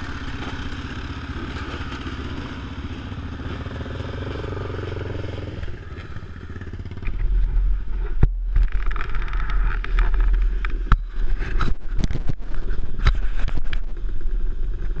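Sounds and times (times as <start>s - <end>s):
steady low rumble: 0.0s - 15.0s
camera knocking and rubbing on mount: 8.2s - 14.0s.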